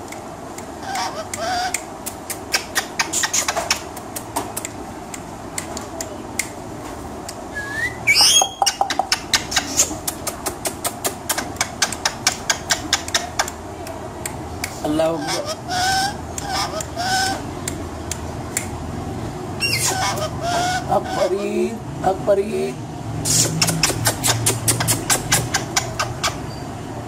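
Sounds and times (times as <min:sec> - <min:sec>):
parrot clicking: 0:00.0 - 0:06.6, 0:08.2 - 0:14.8, 0:16.3 - 0:18.8, 0:23.5 - 0:26.4
parrot squawk: 0:00.8 - 0:01.8, 0:08.1 - 0:10.0, 0:15.1 - 0:17.4, 0:19.6 - 0:21.4
parrot rising whistle: 0:07.5 - 0:09.0.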